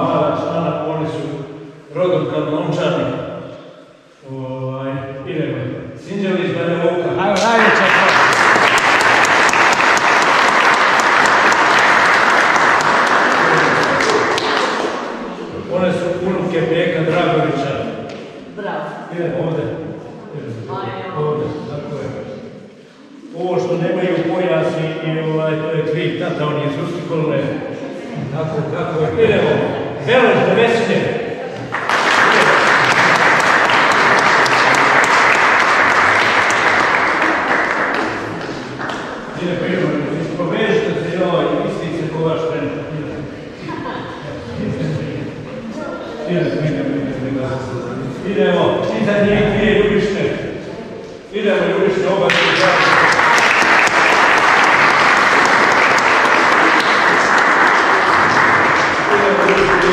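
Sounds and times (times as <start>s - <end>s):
audience applauding: 7.3s - 15.3s, 31.6s - 39.6s, 52.3s - 59.9s.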